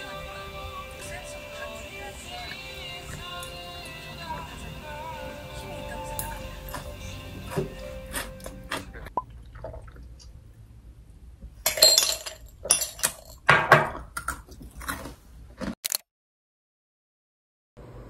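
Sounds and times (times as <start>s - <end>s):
crunchy chewing: 6.1s - 9.1s, 14.1s - 15.4s.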